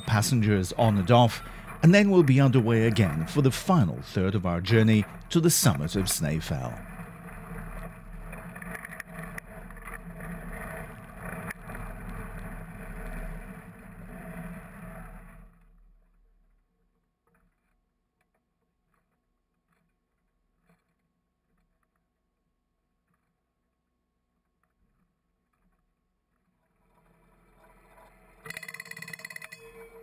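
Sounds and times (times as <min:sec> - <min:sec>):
low hum: 0:00.0 - 0:16.4.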